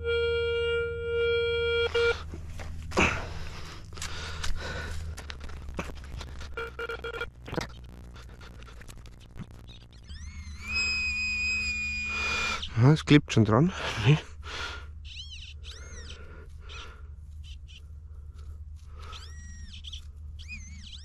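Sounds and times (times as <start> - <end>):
metal detector tone: 0.0 - 2.2, 10.0 - 12.3.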